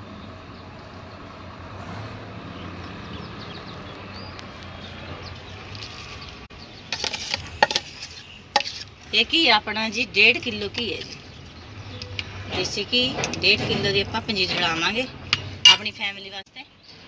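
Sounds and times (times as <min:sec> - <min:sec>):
metal spatula scraping a bowl: 0:06.8 - 0:09.6.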